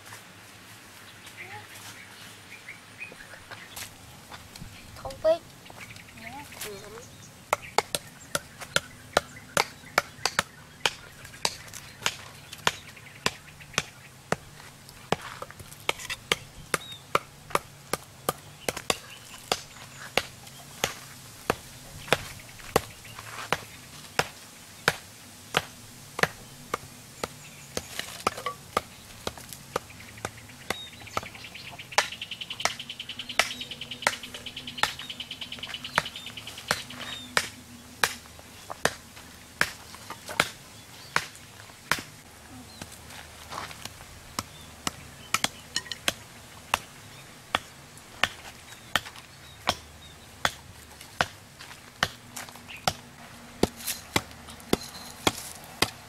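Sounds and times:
wooden knocks on stakes: 0:06.6 - 0:32.8, 0:33.4 - 0:35.1, 0:39.6 - 0:40.6, 0:41.2 - 0:42.2, 0:53.6 - 0:56.0.

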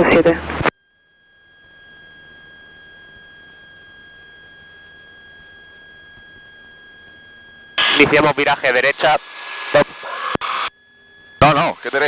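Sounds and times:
high-pitched electronic tone: 0:07.6 - 0:12.0.

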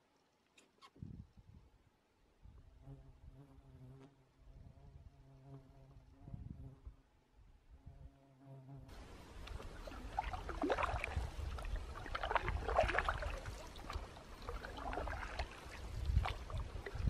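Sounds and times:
canoe paddle splashing in water: 0:09.0 - 0:17.0
water dripping from paddle: 0:09.3 - 0:17.0.

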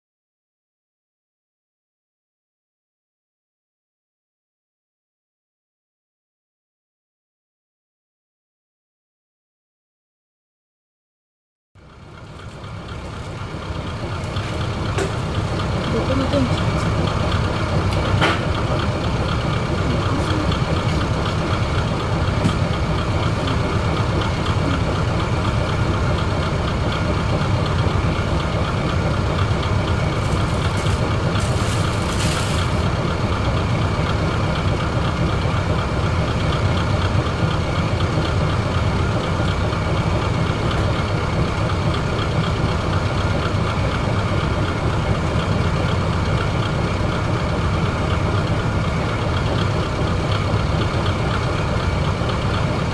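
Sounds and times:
diesel engine idling: 0:11.8 - 0:52.9.

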